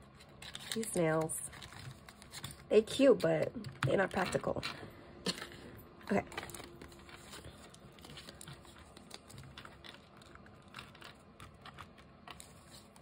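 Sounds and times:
paper banknote rustling: 0:04.3 - 0:13.0
fingernails clicking on paper: 0:06.2 - 0:13.0.

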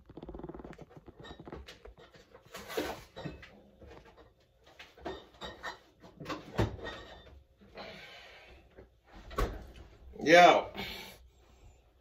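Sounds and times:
kitchen items knocking and clattering: 0:00.0 - 0:07.5.

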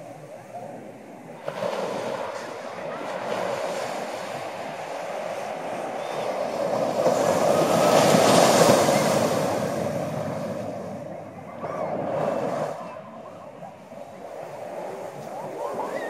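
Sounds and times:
sea waves breaking on sand: 0:00.1 - 0:16.0.

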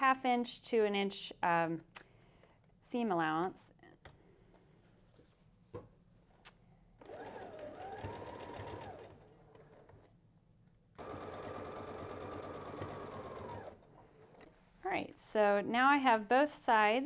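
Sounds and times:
sewing machine stitching: 0:07.0 - 0:10.1, 0:11.0 - 0:14.5.

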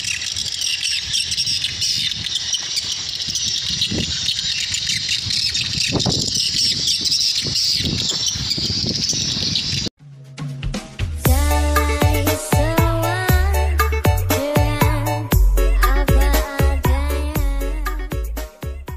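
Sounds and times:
wind rumbling on microphone: 0:00.0 - 0:09.9.

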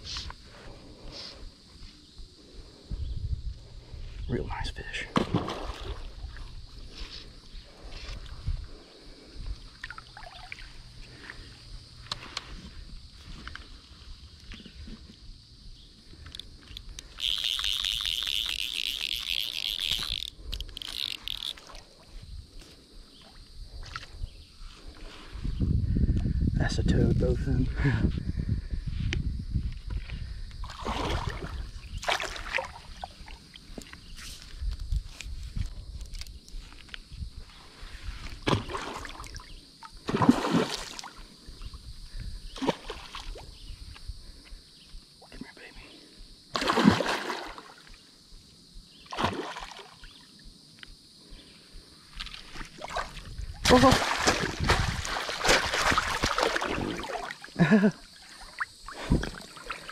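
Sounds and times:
insect buzzing: 0:00.0 - 0:26.6, 0:28.3 - 0:59.9
fish splashing at water surface: 0:46.6 - 0:47.8, 0:52.4 - 0:57.5.

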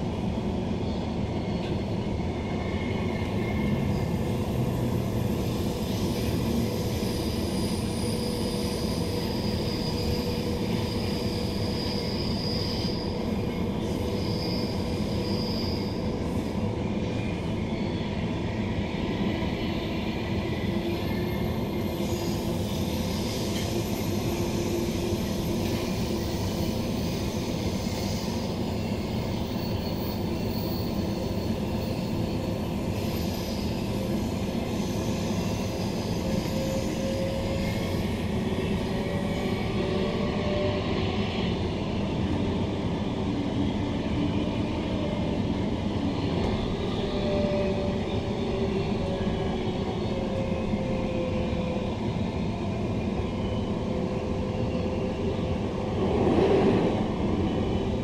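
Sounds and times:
train wheels rumbling on rails: 0:00.0 - 0:58.0.

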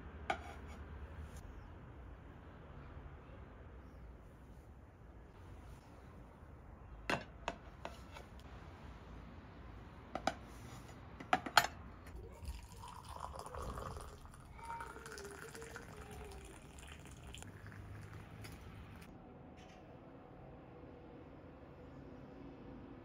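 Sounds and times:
liquid pouring into vessel: 0:12.2 - 0:19.1.

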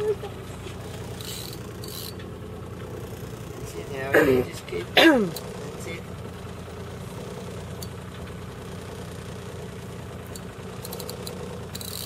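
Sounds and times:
boat engine idling: 0:00.0 - 0:12.0
short run of clicks: 0:10.3 - 0:12.0.

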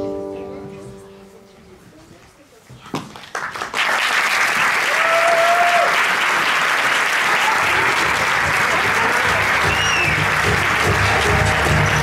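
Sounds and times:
audience applause: 0:03.2 - 0:12.0.

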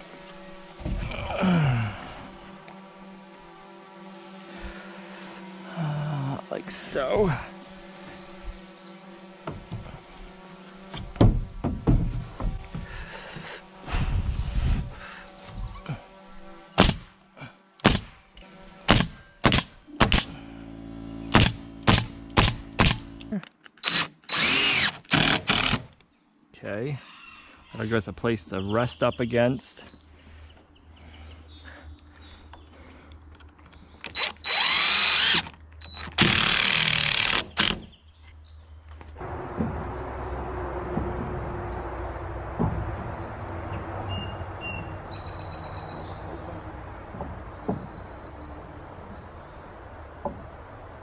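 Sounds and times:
handling knocks: 0:10.9 - 0:13.1, 0:39.2 - 0:48.6
nail gun firing into wood: 0:16.8 - 0:17.1, 0:17.8 - 0:18.2, 0:18.9 - 0:20.4, 0:21.3 - 0:25.9, 0:34.1 - 0:37.9
impact driver driving screw: 0:21.3 - 0:25.9, 0:34.1 - 0:37.9.

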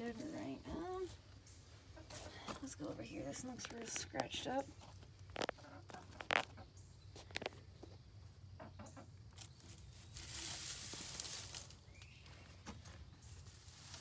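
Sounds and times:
rustling and handling noise: 0:09.3 - 0:14.0.

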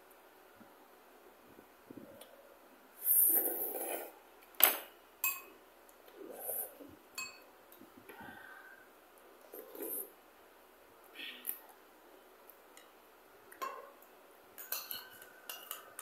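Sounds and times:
metal spoon clinking on bowl: 0:05.2 - 0:05.5, 0:07.2 - 0:07.5, 0:14.6 - 0:16.0.

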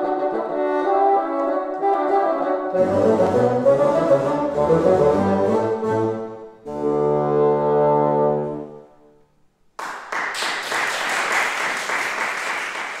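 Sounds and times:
bassoon ensemble chord: 0:02.2 - 0:09.1
audience applause: 0:09.8 - 0:13.0.

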